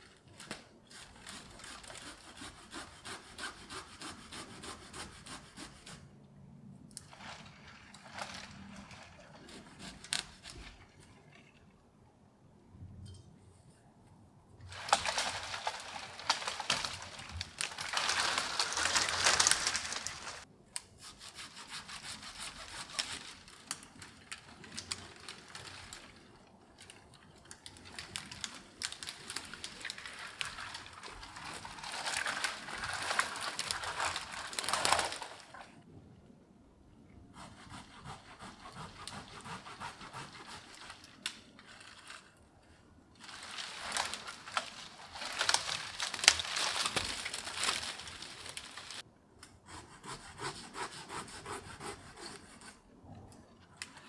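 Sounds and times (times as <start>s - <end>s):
dry twigs crackling and snapping: 0.0s - 2.3s, 14.7s - 20.5s, 22.7s - 35.7s, 40.7s - 49.0s
branches rustling: 0.0s - 4.3s, 7.0s - 11.6s, 14.6s - 20.5s, 21.3s - 35.8s, 37.8s - 49.0s.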